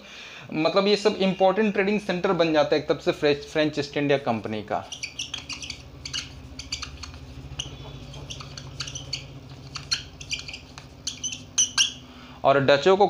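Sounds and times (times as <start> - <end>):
low steady hum: 0.1 - 13.0
marker squeaking on whiteboard: 4.7 - 12.1.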